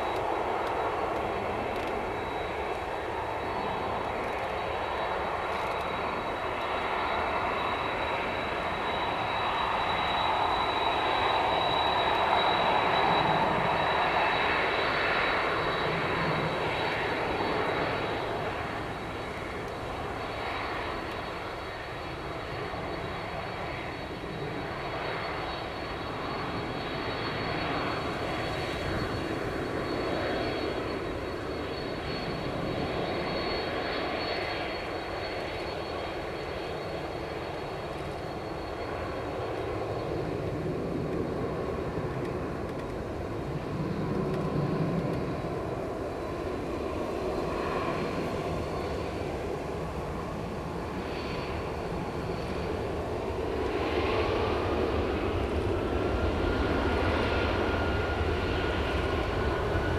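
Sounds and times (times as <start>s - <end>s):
jet engines rumbling and whining: 0.0s - 59.9s.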